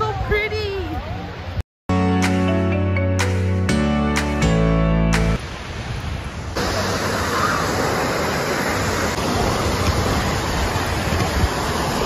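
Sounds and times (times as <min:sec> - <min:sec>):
waves washing in: 0:04.2 - 0:12.0
waterfall pouring: 0:06.5 - 0:12.0.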